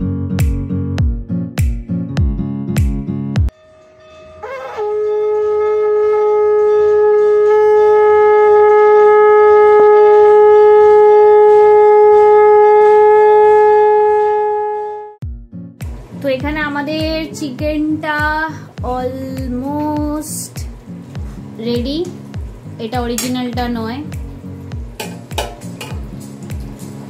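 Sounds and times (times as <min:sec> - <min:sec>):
brief music: 0:03.4 - 0:07.1
conch shell blown: 0:03.5 - 0:15.2.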